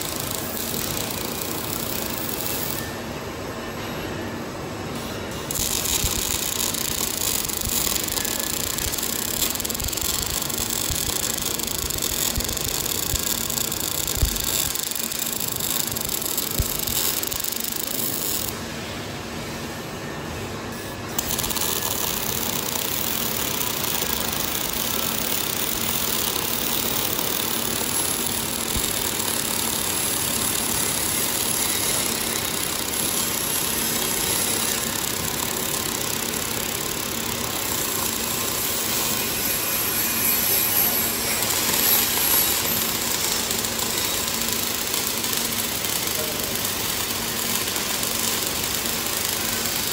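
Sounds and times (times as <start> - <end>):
welding arc hissing: 0.0 - 2.8, 5.3 - 18.6, 21.1 - 49.9
machine hum: 4.8 - 20.0.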